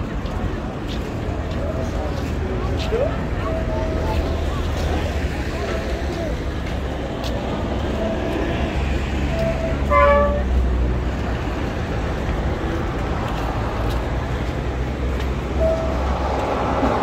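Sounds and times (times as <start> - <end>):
road traffic rumble: 0.0 - 17.0
vehicle horn toot: 9.4 - 10.5.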